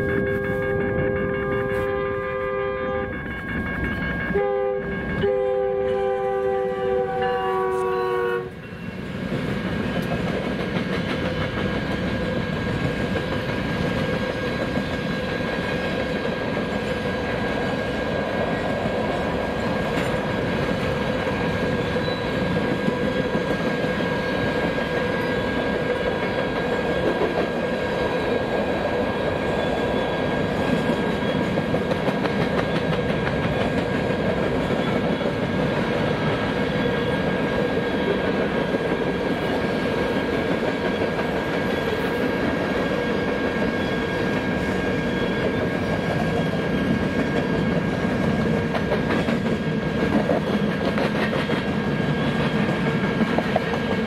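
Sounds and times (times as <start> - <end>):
thin steady ringing tones: 0.0 - 5.4
train wheels rumbling on rail: 0.0 - 54.0
clickety-clack over rail joints: 9.1 - 54.0.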